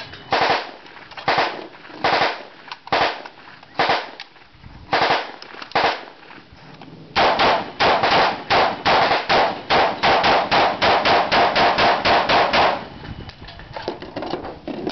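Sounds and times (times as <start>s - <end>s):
rifle gunshots: 0.3s - 4.2s, 4.9s - 6.2s, 7.2s - 12.9s.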